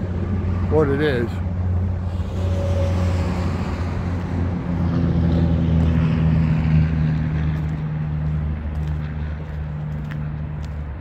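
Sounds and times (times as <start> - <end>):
passing motor traffic drone: 0.0 - 11.0.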